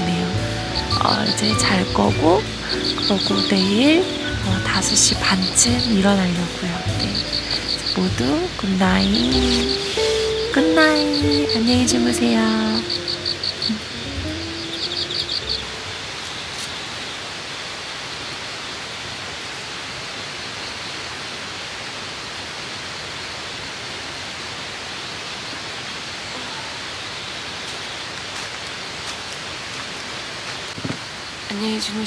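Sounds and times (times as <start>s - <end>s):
background music: 0.0s - 16.1s
hiss of falling water: 0.0s - 32.0s.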